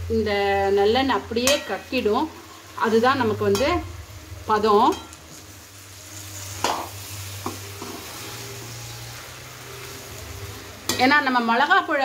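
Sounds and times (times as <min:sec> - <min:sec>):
oil sizzling: 0:00.0 - 0:12.0
metal spoon scraping a pan: 0:06.2 - 0:10.1.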